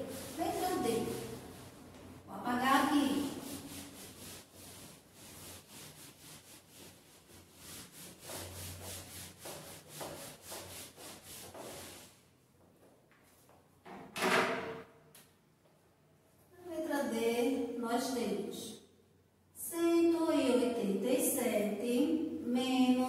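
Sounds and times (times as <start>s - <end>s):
eraser wiping whiteboard: 0.0s - 12.3s.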